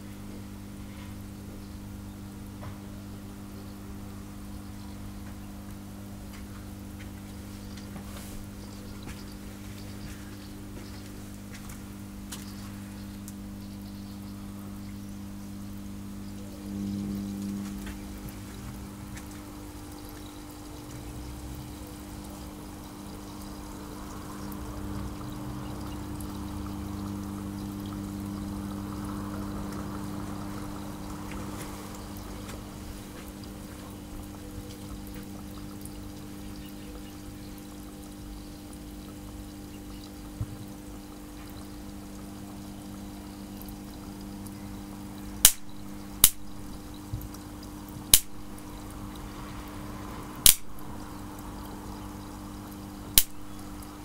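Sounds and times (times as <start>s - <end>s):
salt water fizzing and bubbling: 0.0s - 54.0s
steady low hum: 0.0s - 54.0s
sharp loud cracks: 45.4s - 46.4s, 48.1s - 48.4s, 50.4s - 50.8s, 53.2s - 53.4s.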